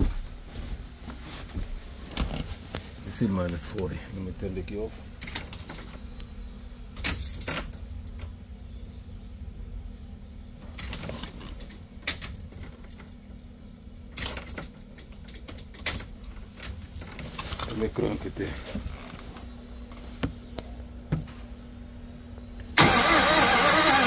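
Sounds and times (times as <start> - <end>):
steady low hum: 0.0 - 22.9
keys jangling and clicking: 5.2 - 6.2, 7.0 - 8.4, 10.8 - 17.5.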